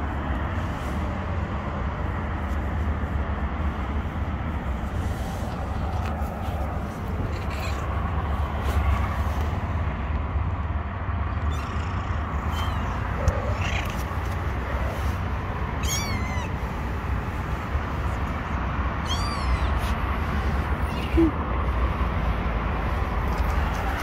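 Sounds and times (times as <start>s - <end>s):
steady low rumble: 0.0s - 24.0s
kittens meowing: 7.1s - 8.3s, 11.4s - 17.0s, 18.9s - 20.0s, 20.7s - 21.4s.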